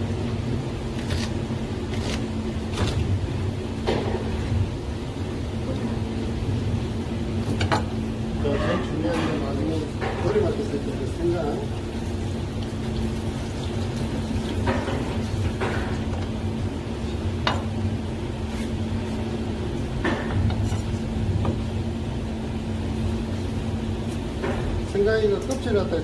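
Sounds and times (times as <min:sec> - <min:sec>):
low kitchen hum: 0:00.0 - 0:26.0.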